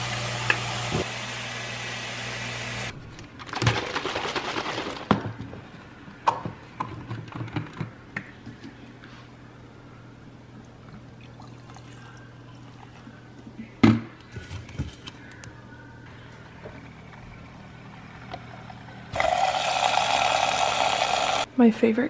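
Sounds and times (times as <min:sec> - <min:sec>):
low appliance hum: 0:00.0 - 0:22.0
kitchen appliance motor whirring: 0:19.1 - 0:21.5.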